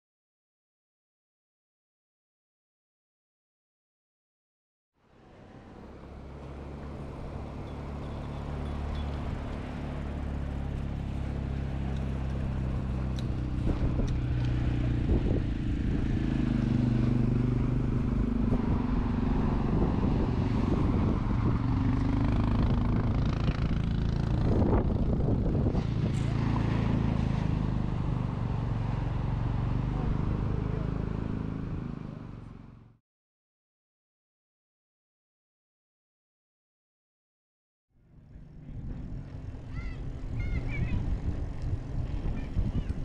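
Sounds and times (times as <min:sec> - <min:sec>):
bicycle tyres rumbling: 0:05.8 - 0:29.7, 0:38.2 - 0:43.0
wind on microphone: 0:12.4 - 0:28.0, 0:38.6 - 0:43.0.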